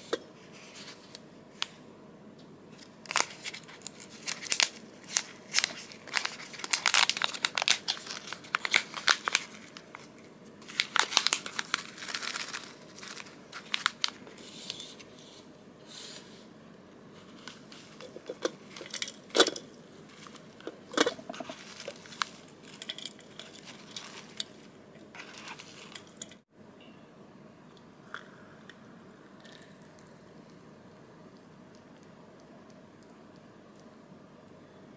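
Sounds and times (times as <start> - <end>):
plastic pouch crinkling: 3.0 - 14.4, 17.4 - 26.4.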